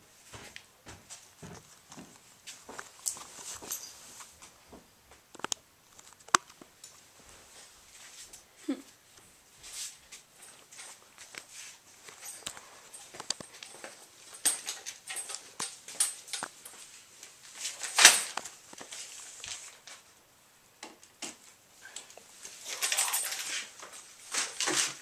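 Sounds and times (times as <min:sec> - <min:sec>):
tools and plastic being handled: 0:09.8 - 0:20.1.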